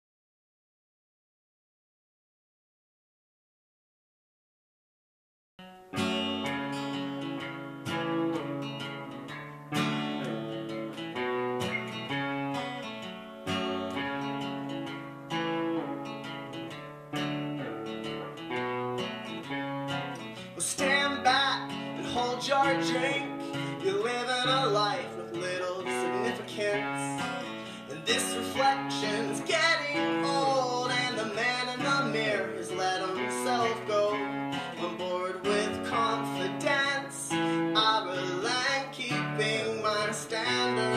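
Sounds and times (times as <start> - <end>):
acoustic and electric guitars strumming: 5.6 - 40.9
man singing: 20.3 - 40.9.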